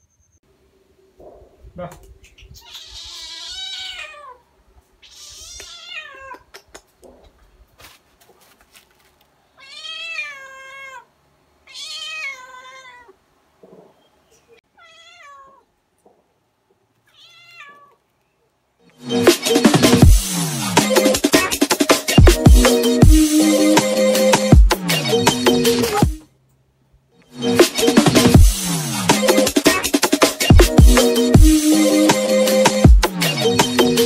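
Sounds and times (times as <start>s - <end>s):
cat meowing: 2.6s - 6.5s, 9.6s - 13.2s, 14.7s - 15.7s, 17.0s - 18.0s.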